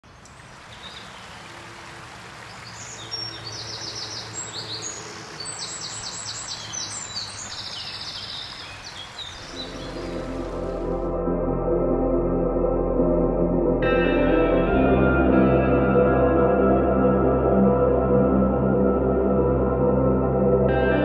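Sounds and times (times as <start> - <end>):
rocky stream rushing: 0.0 - 11.1
songbirds singing: 0.0 - 11.1
ambient music: 9.5 - 21.0.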